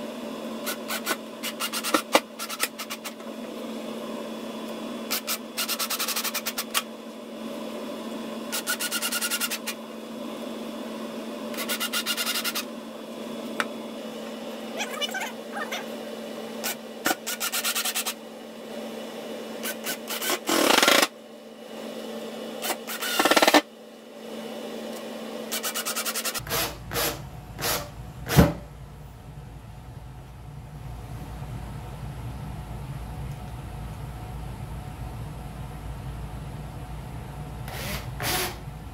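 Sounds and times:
power tool cutting wood: 0:00.6 - 0:03.2, 0:08.5 - 0:09.8, 0:11.5 - 0:12.7, 0:16.6 - 0:18.2, 0:19.6 - 0:21.2, 0:22.6 - 0:23.7, 0:25.4 - 0:28.5, 0:37.7 - 0:38.6
low hum: 0:26.4 - 0:37.8.

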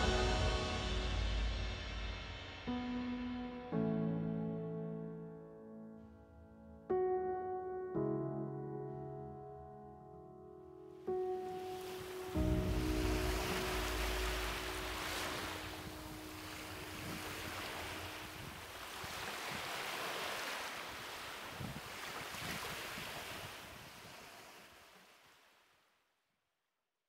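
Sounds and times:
sea surf washing onto beach: 0:11.3 - 0:25.4.

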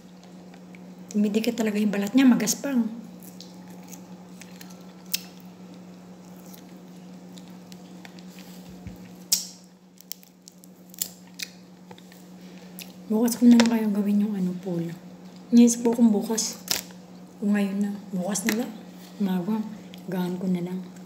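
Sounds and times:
person chewing fruit: 0:03.2 - 0:13.0
sharp clicks and crunches: 0:06.2 - 0:12.2.

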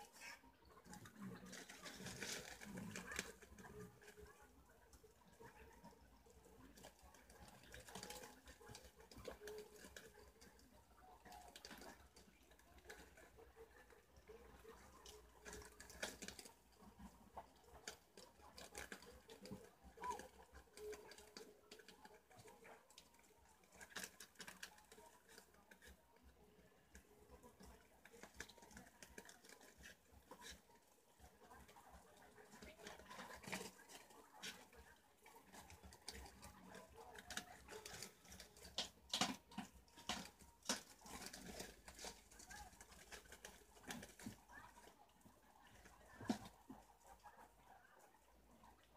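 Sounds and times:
small animals nibbling and rustling: 0:00.0 - 0:48.9
nibbling crunches and clicks: 0:26.9 - 0:44.9.

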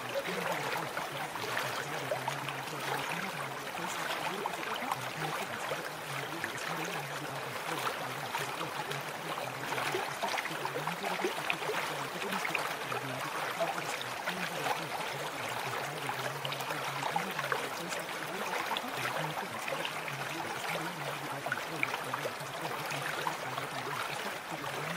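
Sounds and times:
stream running: 0:00.0 - 0:24.9.

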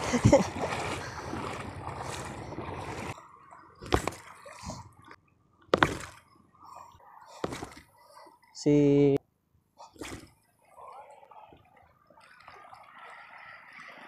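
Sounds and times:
water lapping at shore: 0:00.0 - 0:08.5, 0:09.8 - 0:14.0
sharp knocks: 0:05.7 - 0:06.2.

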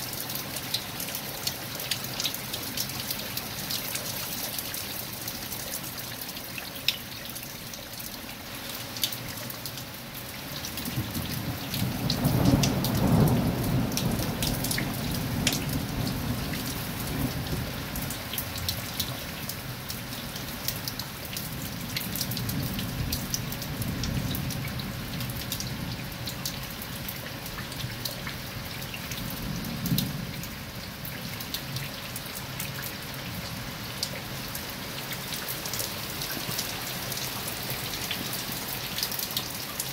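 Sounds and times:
heavy rain on stone: 0:00.0 - 0:39.9
thunder rumbling: 0:10.9 - 0:17.9.

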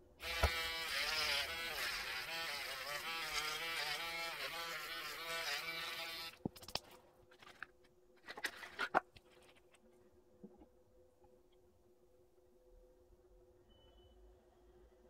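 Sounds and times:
electric nail drill whining: 0:00.2 - 0:06.4.

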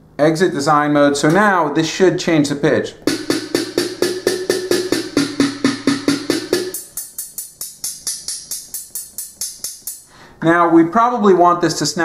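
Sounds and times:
drum sample hits: 0:03.0 - 0:10.0.

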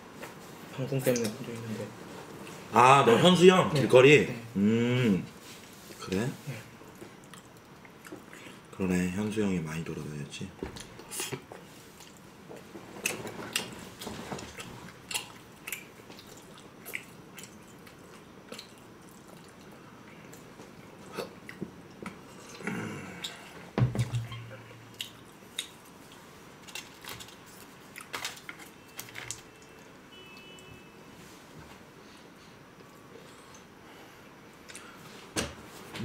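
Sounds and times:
chewing: 0:06.8 - 0:08.6, 0:10.8 - 0:23.6, 0:24.3 - 0:29.8.

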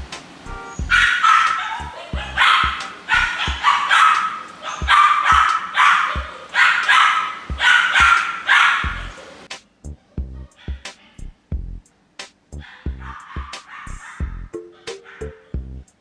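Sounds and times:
puppy barking: 0:00.8 - 0:09.4, 0:10.0 - 0:11.3, 0:12.6 - 0:15.5.

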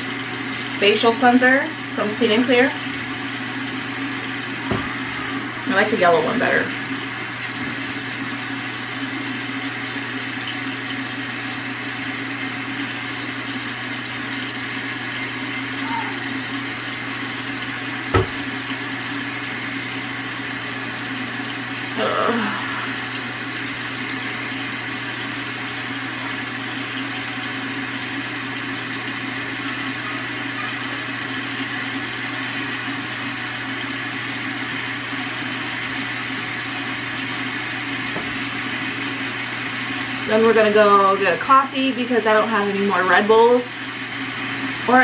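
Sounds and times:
steady mechanical hum: 0:00.0 - 0:45.0
sharp knock: 0:18.1 - 0:18.4.

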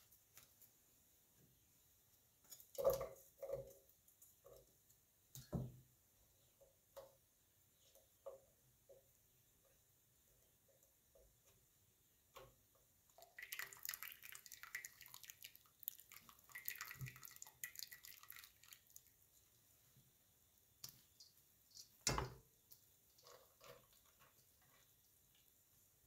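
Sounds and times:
water dripping from colander: 0:12.3 - 0:19.3.

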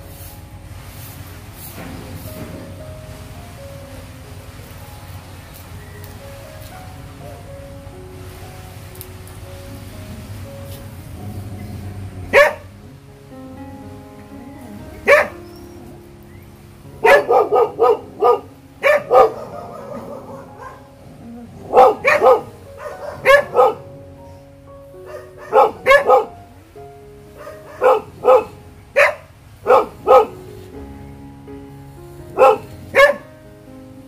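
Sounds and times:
background music: 0:00.0 - 0:34.0
dog barking: 0:12.2 - 0:12.8, 0:15.0 - 0:15.4, 0:17.0 - 0:20.9, 0:21.6 - 0:23.9, 0:25.0 - 0:26.4, 0:27.4 - 0:30.4, 0:32.4 - 0:33.3.

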